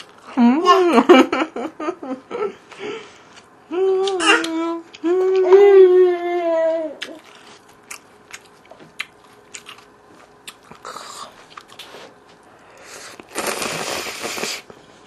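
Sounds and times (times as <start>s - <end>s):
soft mouth sounds: 12.8s - 14.8s
person slurping noodles: 12.9s - 14.7s.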